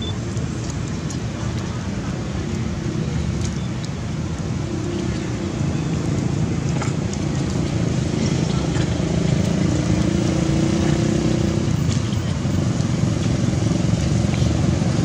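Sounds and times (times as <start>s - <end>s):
engine rumbling: 0.0s - 15.0s.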